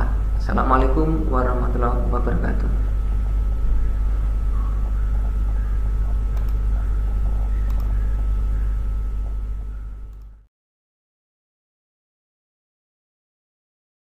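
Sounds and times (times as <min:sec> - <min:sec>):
low rumbling hum: 0:00.0 - 0:10.5
faint clicks: 0:04.8 - 0:08.3.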